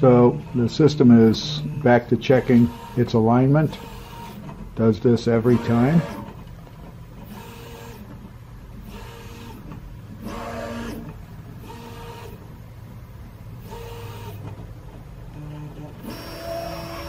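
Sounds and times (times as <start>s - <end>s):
stepper motors whining: 0.0s - 6.5s, 8.8s - 12.7s, 13.5s - 17.0s
steady low hum: 0.0s - 17.0s.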